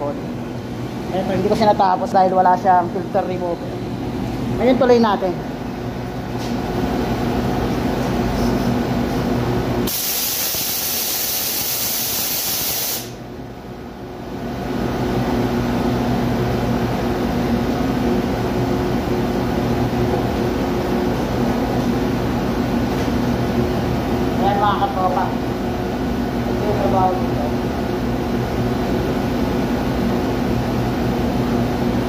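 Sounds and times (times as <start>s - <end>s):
machinery hum: 0.0s - 32.0s
compressed air hissing: 9.9s - 13.2s.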